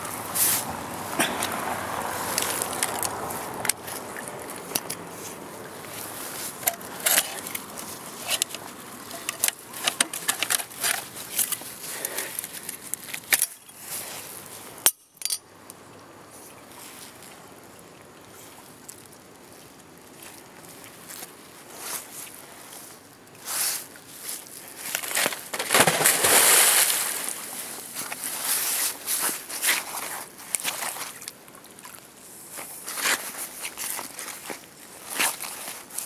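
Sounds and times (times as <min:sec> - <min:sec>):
faint steady hiss: 0:00.0 - 0:36.0
bicycle clinking and rattling on stone: 0:06.4 - 0:13.8, 0:14.8 - 0:15.5.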